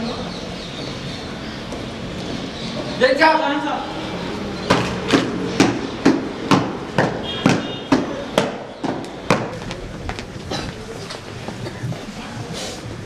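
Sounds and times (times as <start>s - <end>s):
marching boots stamping on hard floor: 4.7s - 10.3s.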